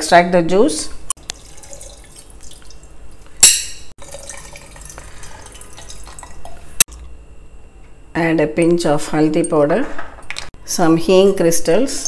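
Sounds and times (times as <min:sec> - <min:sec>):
liquid pouring into metal pot: 0:01.2 - 0:03.4, 0:04.0 - 0:06.8.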